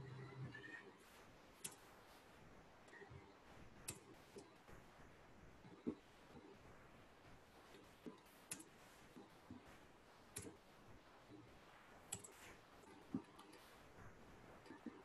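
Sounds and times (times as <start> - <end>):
computer mouse clicks: 1.6 - 1.9, 3.8 - 4.5, 7.7 - 9.6, 10.3 - 10.6, 12.1 - 13.7.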